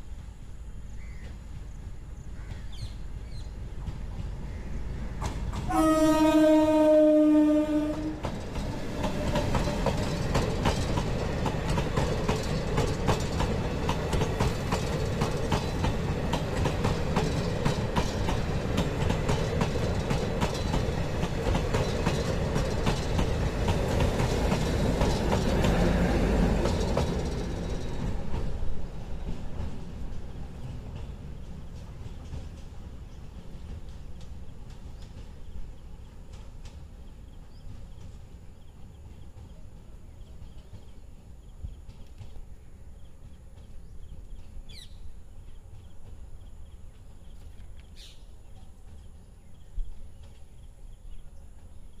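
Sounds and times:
train running rumble: 0:00.0 - 0:52.0
train wheels clacking over rail joints: 0:01.2 - 0:48.2
train horn blast: 0:05.6 - 0:08.3, 0:09.0 - 0:10.0.

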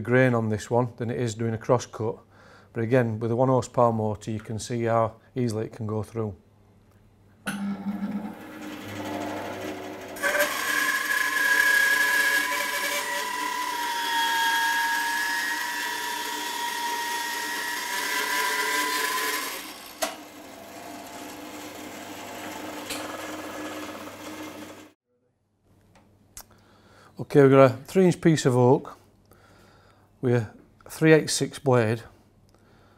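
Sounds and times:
bandsaw cutting wood: 0:08.1 - 0:25.0.

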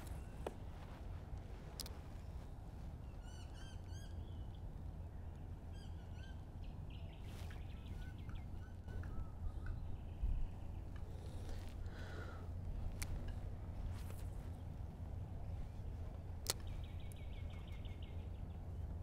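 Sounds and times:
small birds chirping: 0:00.0 - 0:19.0
steady low rumble: 0:00.0 - 0:19.0.

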